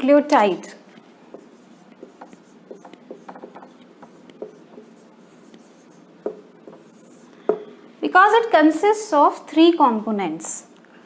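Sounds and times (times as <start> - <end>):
marker writing on whiteboard: 0.9 - 7.8
marker tap: 1.3 - 7.7.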